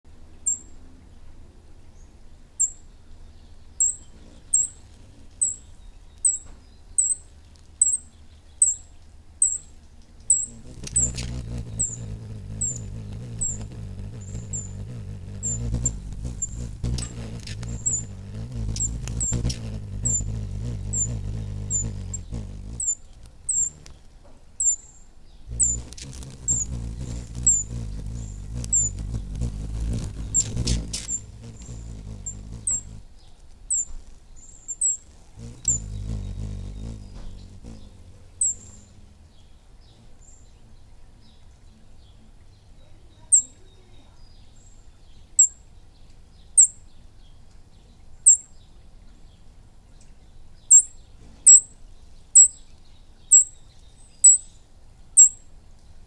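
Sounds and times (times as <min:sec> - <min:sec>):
hummingbird chip notes: 0:10.3 - 0:23.9, 0:25.5 - 0:33.0, 0:34.8 - 0:39.2.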